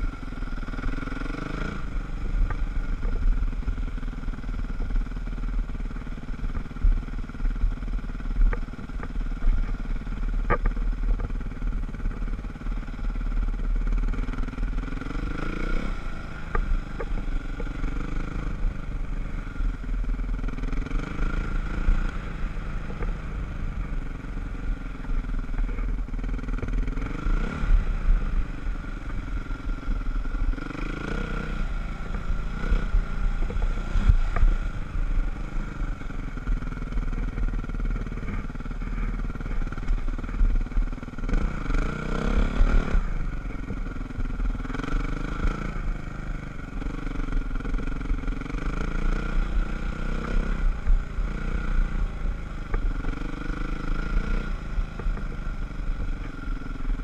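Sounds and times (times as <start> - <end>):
dirt bike engine revving: 30.4 - 46.0.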